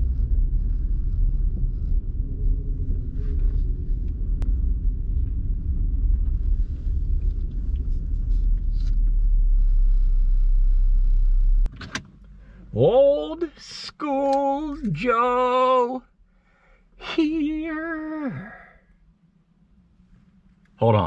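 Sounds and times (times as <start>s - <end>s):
tyre rumble: 0.0s - 11.7s
car engine: 0.0s - 15.9s.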